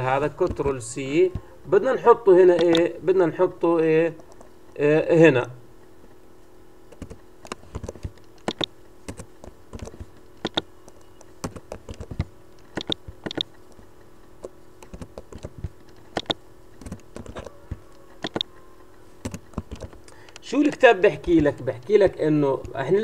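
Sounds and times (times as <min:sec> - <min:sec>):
typing on a keyboard: 0:06.9 - 0:13.8, 0:14.8 - 0:18.6, 0:19.2 - 0:20.0.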